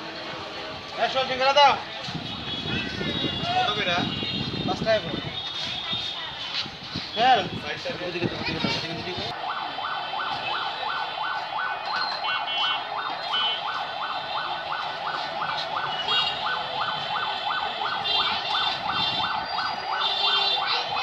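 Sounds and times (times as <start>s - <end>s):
sweeping electronic siren tone: 9.3s - 21.0s.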